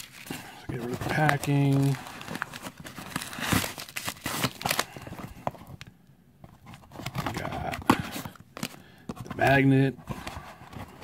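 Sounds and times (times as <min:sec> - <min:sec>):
paper packing rustling: 0:00.0 - 0:05.8.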